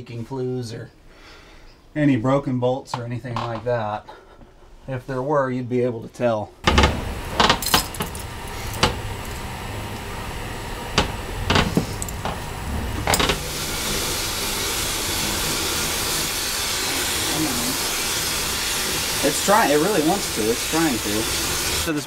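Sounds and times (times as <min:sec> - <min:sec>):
metal knocks and clanks: 0:06.6 - 0:15.4
oil burner rushing hiss: 0:06.6 - 0:22.0.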